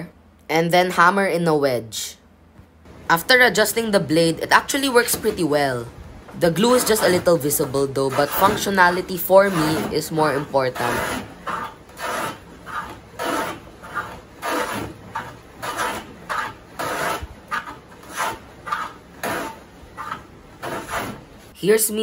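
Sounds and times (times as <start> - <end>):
hand plane rasping on wood: 6.6 - 21.4.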